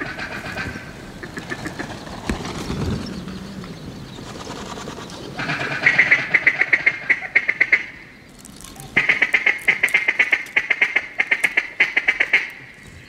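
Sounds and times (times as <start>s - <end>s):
duck calling: 5.4s - 8.0s, 8.8s - 12.7s.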